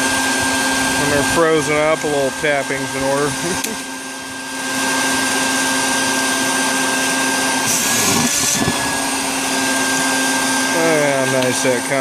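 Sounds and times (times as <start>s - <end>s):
shop vac humming: 0.0s - 12.0s
hissing slurp of suction: 7.6s - 9.6s.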